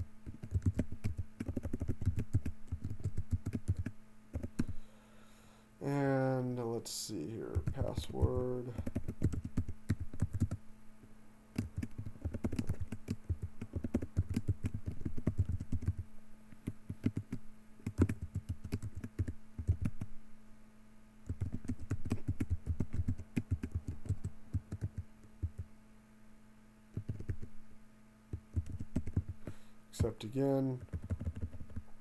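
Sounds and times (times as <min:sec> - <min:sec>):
faint low hum: 0:00.0 - 0:32.0
computer keyboard typing: 0:00.2 - 0:04.8, 0:07.5 - 0:10.6, 0:11.6 - 0:16.0, 0:16.6 - 0:20.1, 0:21.3 - 0:25.6, 0:26.9 - 0:27.5, 0:28.3 - 0:29.4, 0:30.8 - 0:31.9.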